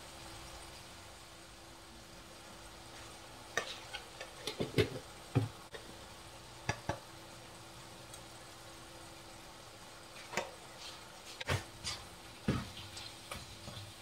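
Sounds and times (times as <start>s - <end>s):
faint steady hum: 0.0s - 14.0s
mince frying in a pan: 0.0s - 14.0s.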